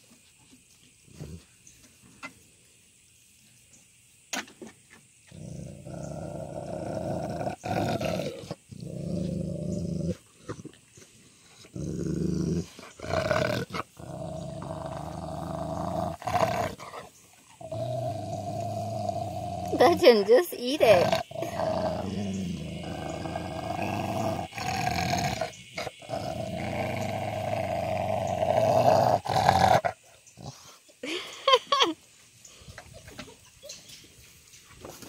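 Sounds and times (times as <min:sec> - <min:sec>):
dog growling and snarling: 0:05.3 - 0:10.8, 0:11.4 - 0:30.8.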